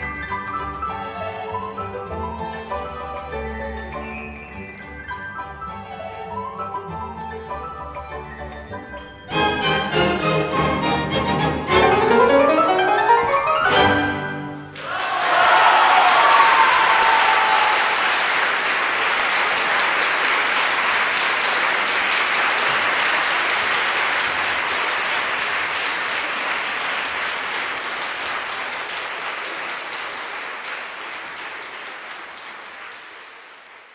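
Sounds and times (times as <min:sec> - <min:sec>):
audience applauding: 0:14.7 - 0:33.9.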